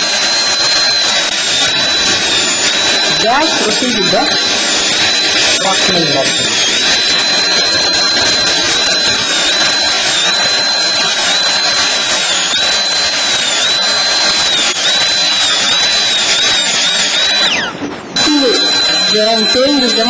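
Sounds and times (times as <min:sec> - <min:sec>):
dental drill whining: 0:00.0 - 0:20.0.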